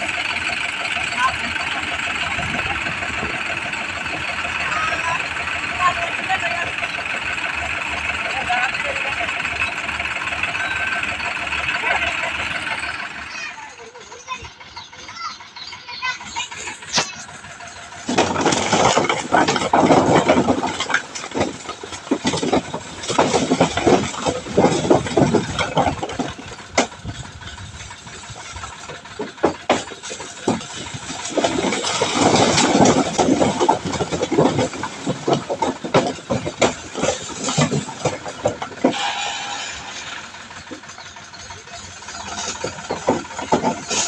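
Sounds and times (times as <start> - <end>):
tractor engine running: 0.0 - 44.0
bricks clattering onto a pile: 18.0 - 27.2, 28.6 - 40.8, 42.2 - 44.0.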